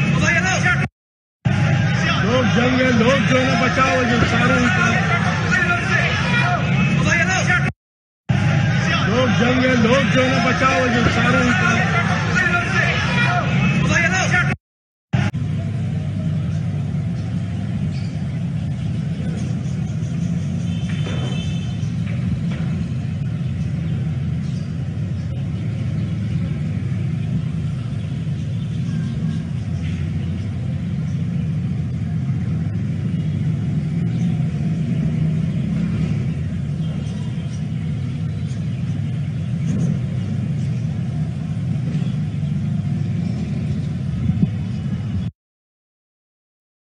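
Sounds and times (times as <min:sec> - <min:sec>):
faint voices: 0:01.5 - 0:07.7, 0:08.3 - 0:14.6.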